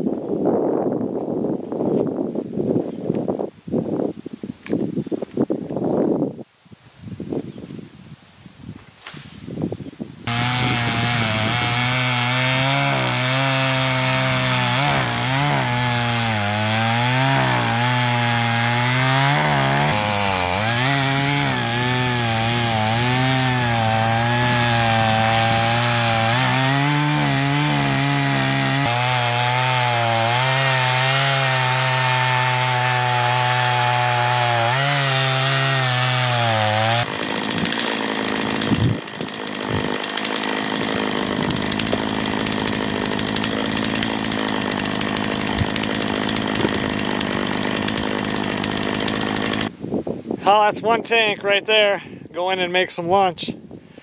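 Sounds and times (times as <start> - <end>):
chainsaw cutting wood: 10.2 - 49.8.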